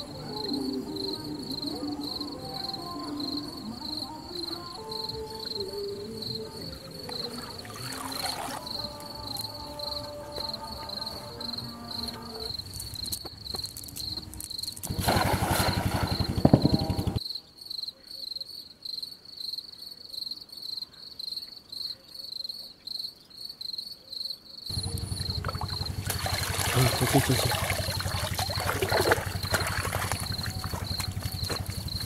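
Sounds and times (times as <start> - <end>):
insect chirping in pulses: 0.0 - 17.8, 24.6 - 32.0
water splashing: 7.0 - 9.1, 13.8 - 17.2, 24.7 - 32.0.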